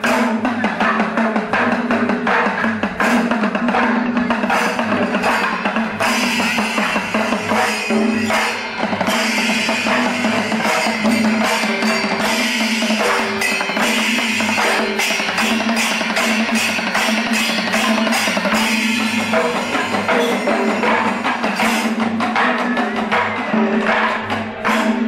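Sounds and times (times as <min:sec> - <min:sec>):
music with drum beat: 0:00.0 - 0:25.0.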